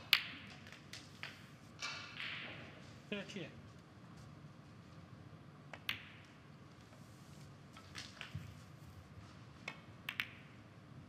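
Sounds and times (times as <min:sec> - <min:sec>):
snooker balls clicking: 0:00.0 - 0:02.8, 0:05.6 - 0:06.4, 0:07.8 - 0:08.7, 0:09.6 - 0:10.7
ball dropping into pocket: 0:05.7 - 0:06.4, 0:09.6 - 0:10.6.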